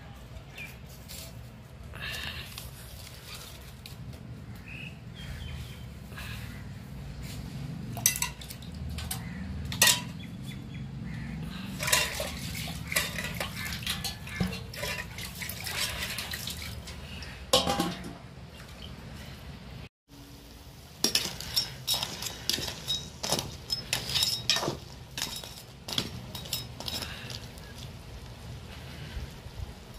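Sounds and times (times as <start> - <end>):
metal clinks against pot: 8.0 - 10.2, 11.8 - 15.2, 17.5 - 18.2
steel plate clattering on pot: 8.0 - 10.2, 11.8 - 16.1, 17.5 - 18.2.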